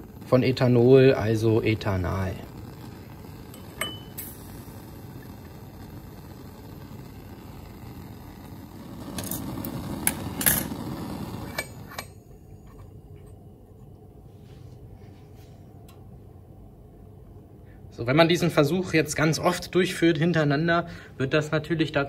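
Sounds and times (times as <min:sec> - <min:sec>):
bunsen burner hissing: 0:00.0 - 0:13.1.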